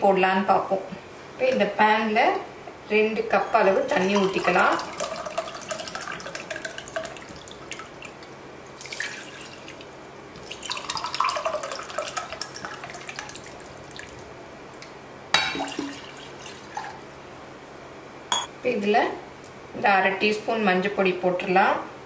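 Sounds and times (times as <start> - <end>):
water pouring into steel tumbler: 4.0 - 7.9, 8.8 - 9.8, 10.4 - 13.6.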